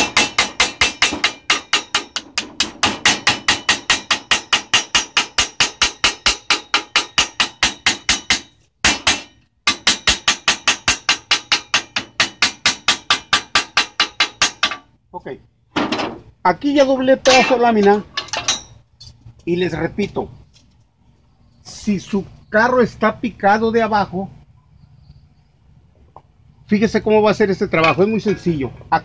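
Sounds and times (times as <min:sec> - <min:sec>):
hammer tapping on metal: 0:00.0 - 0:14.9.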